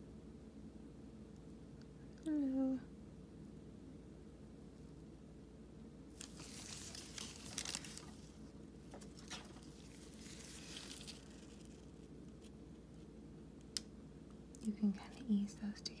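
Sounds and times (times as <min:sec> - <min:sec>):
low steady hum: 0:00.0 - 0:16.0
rustling and handling noises: 0:06.1 - 0:15.2.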